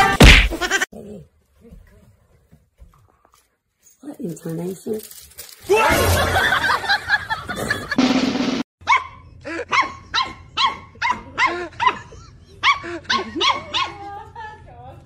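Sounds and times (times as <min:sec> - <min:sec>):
puppy yapping: 0:08.8 - 0:14.0.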